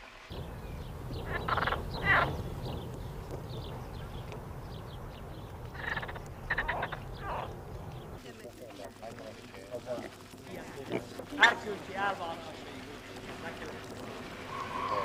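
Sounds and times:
steady low rumble: 0.3s - 8.2s
frogs croaking: 0.3s - 15.0s.

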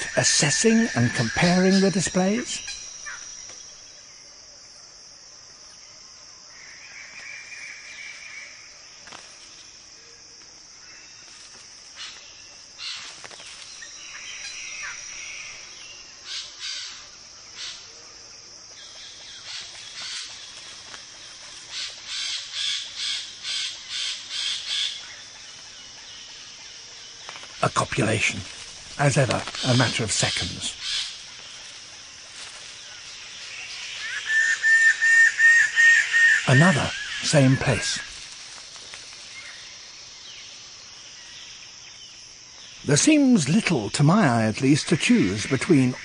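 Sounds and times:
high insect drone: 0.0s - 46.0s
harsh crow-like bird calls: 2.5s - 3.3s, 12.8s - 13.2s, 14.0s - 17.9s, 18.8s - 20.6s, 21.6s - 25.5s, 29.6s - 31.3s, 33.6s - 38.0s.

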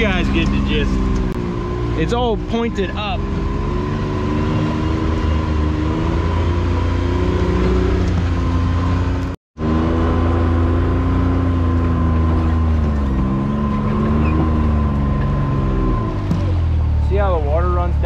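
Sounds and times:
engine running at low revs: 0.0s - 18.0s.

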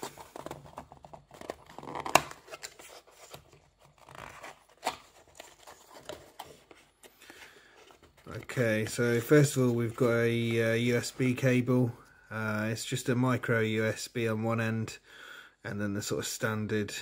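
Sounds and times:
cardboard box being opened: 0.0s - 7.1s.

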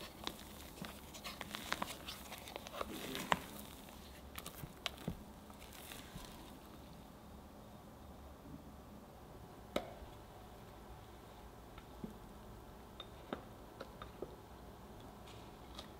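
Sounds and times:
spatula folding cake batter: 0.0s - 7.1s.

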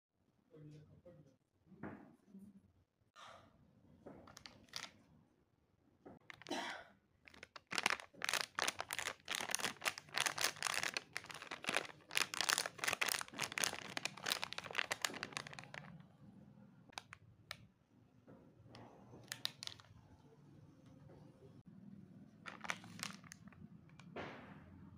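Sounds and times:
plastic candy packet crinkling: 4.3s - 5.0s, 6.3s - 6.6s, 7.3s - 16.0s, 16.9s - 17.2s, 19.2s - 19.9s, 22.5s - 23.6s.

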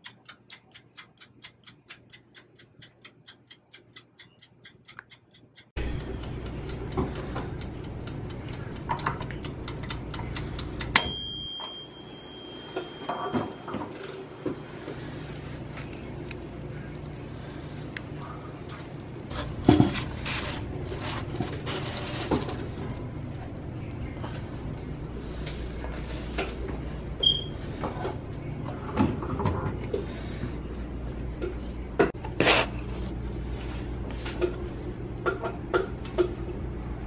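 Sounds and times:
toaster oven humming: 5.8s - 37.0s
toaster oven timer bell: 10.9s - 14.4s.

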